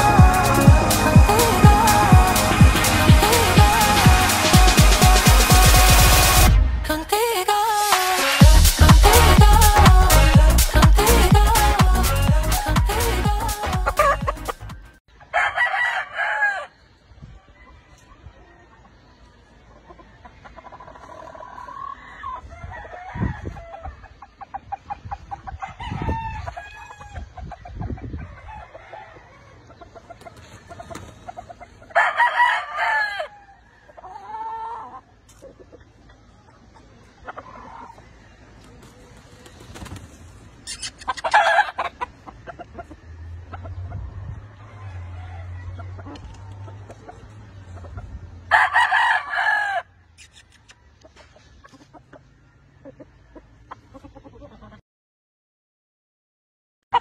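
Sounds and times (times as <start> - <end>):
roosters crowing: 0.0 - 6.5, 7.8 - 24.4, 25.1 - 35.2, 37.1 - 51.2
chicken clucks and calls: 12.6 - 54.8.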